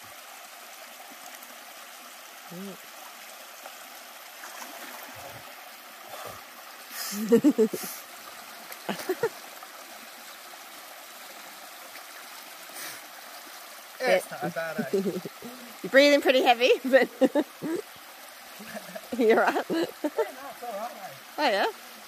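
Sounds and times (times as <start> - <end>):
creek water trickling: 0.0 - 22.0
water sloshing: 4.3 - 6.6.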